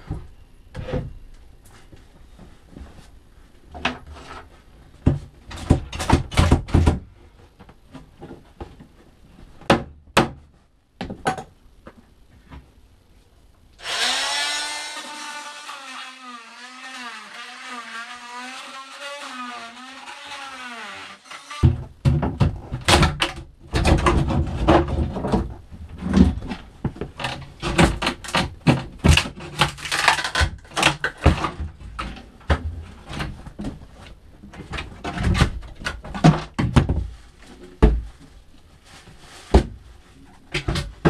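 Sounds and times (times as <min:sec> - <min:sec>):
power tool cutting: 0:13.8 - 0:21.7
knocks and clatter of hand work: 0:21.7 - 0:34.0.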